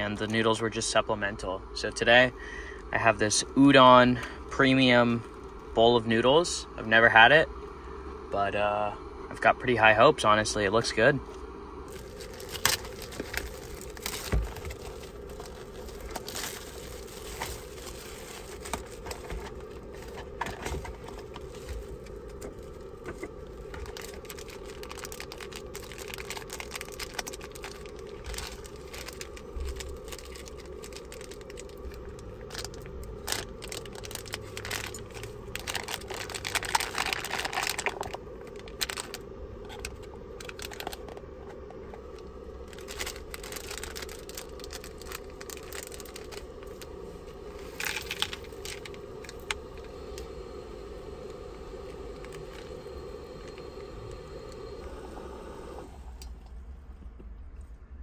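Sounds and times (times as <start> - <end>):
plastic packaging crinkling: 11.9 - 54.8.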